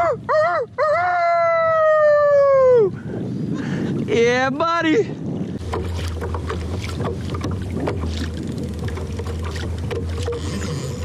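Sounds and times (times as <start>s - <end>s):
wind rumble on microphone: 0.0s - 11.0s
water slapping kayak hull: 2.9s - 11.0s.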